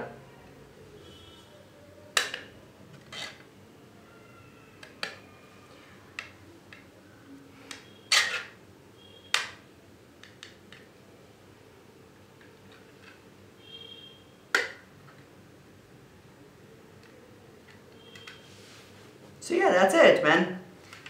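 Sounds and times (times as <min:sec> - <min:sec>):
plastic clicks and snaps: 0:02.2 - 0:02.5, 0:10.2 - 0:10.9.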